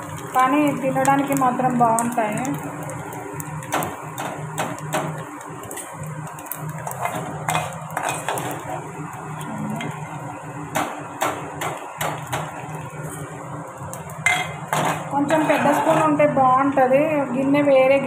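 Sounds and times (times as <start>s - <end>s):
spoon scraping metal pan: 7.0s - 8.8s, 14.3s - 16.3s.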